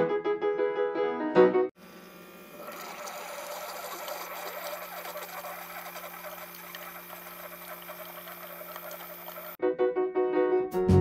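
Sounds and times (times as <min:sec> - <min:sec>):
coffee maker pump hum: 0:01.8 - 0:09.6
coffee trickling into a mug: 0:02.0 - 0:09.6.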